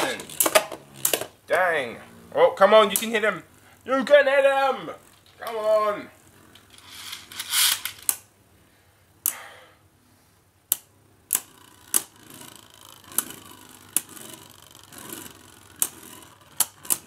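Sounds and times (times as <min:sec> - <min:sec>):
spinning tops clacking together: 0:00.0 - 0:01.4, 0:06.5 - 0:08.3, 0:11.3 - 0:17.0
faint whirr of spinning tops: 0:00.0 - 0:08.3, 0:10.7 - 0:17.0.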